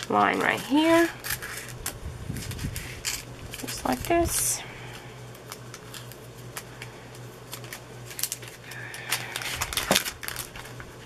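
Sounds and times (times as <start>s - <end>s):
plastic crinkling: 0.0s - 11.0s
scissors snipping plastic film: 7.5s - 10.8s.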